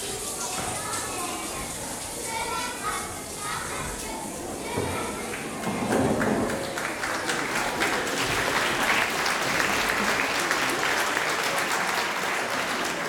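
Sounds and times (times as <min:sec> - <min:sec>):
audience applauding: 0:05.0 - 0:13.0.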